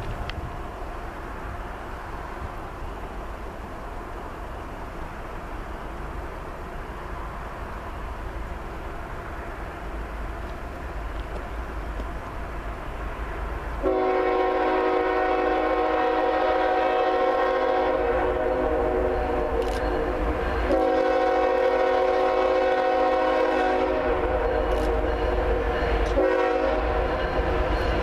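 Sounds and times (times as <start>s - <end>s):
low train rumble: 0.0s - 28.0s
locomotive air horn blasts: 13.8s - 27.2s.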